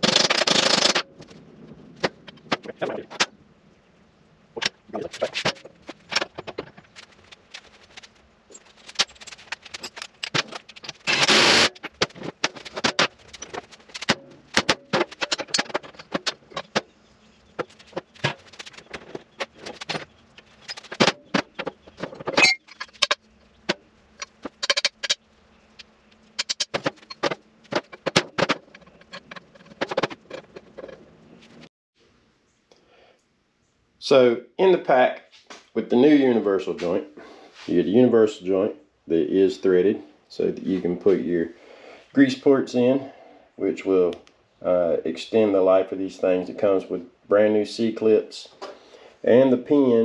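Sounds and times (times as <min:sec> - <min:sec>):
scraping rattle: 0:05.0 - 0:31.7
metal tools clinking: 0:07.6 - 0:16.8, 0:17.7 - 0:21.3, 0:22.0 - 0:23.2, 0:26.4 - 0:31.0.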